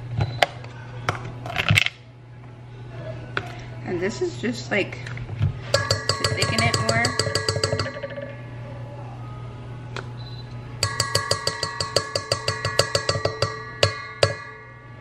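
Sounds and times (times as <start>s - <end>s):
spoon clinking in metal bowl: 5.7s - 8.5s, 10.8s - 15.0s
hard knocks on bowl: 5.7s - 8.6s, 10.8s - 15.0s.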